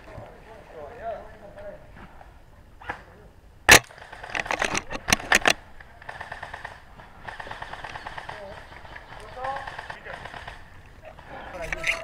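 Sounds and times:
airsoft rifle shot: 0:03.7 - 0:04.5.

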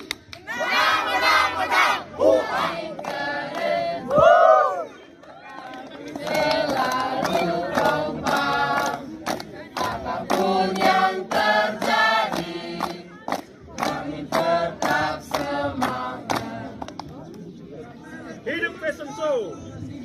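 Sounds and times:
hand claps: 0:00.0 - 0:00.5, 0:05.5 - 0:17.4.

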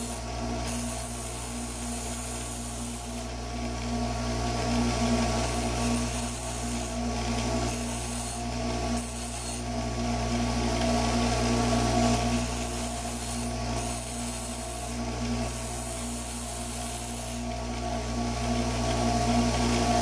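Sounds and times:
drill bit grinding hiss: 0:00.0 - 0:03.3, 0:05.4 - 0:07.0, 0:07.6 - 0:09.6, 0:12.1 - 0:17.5
bench grinder motor hum: 0:00.0 - 0:20.0.

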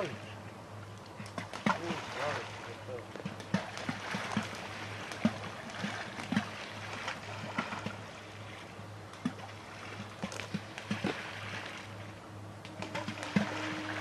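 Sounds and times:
steady low hum: 0:00.0 - 0:14.0
waterside ambience: 0:00.0 - 0:14.0.

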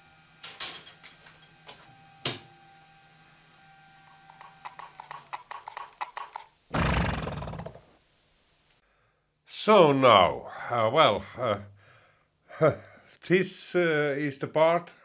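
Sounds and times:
hooves clip-clopping: 0:04.3 - 0:06.4
horse snorting: 0:06.7 - 0:07.8.

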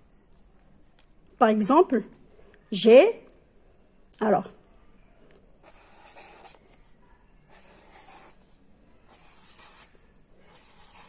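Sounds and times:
marker drawing on paper: 0:05.6 - 0:11.0.

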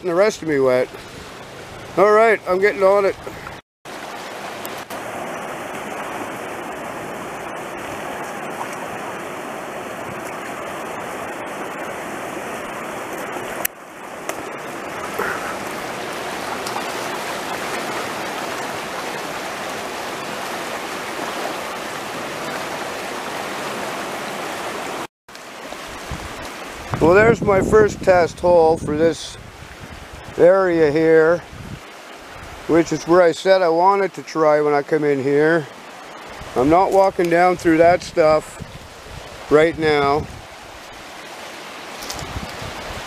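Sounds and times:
river rushing: 0:00.0 - 0:43.0.

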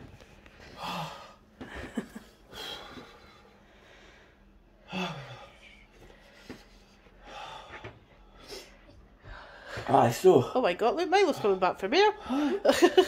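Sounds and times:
man breathing hard: 0:00.6 - 0:01.5, 0:02.4 - 0:09.9
low moan: 0:04.8 - 0:05.8.

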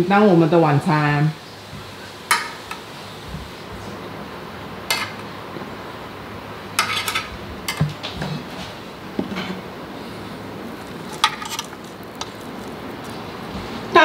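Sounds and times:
utensils clinking against dishes: 0:04.9 - 0:05.3, 0:06.8 - 0:08.7, 0:11.1 - 0:12.5.

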